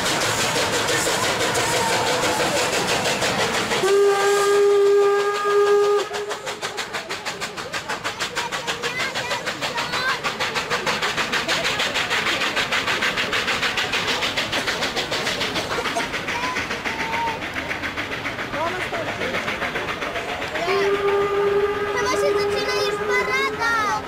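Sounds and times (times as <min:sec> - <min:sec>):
locomotive exhaust chuffs: 0:00.0 - 0:24.0
rush of steam: 0:00.0 - 0:24.0
steam whistle blast: 0:03.8 - 0:06.5, 0:20.6 - 0:23.3.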